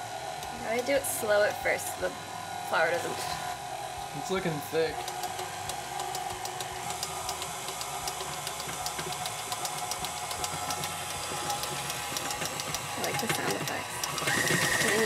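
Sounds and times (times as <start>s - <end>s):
stand mixer motor humming: 0.0s - 15.0s
beater clicking in dough: 5.0s - 15.0s.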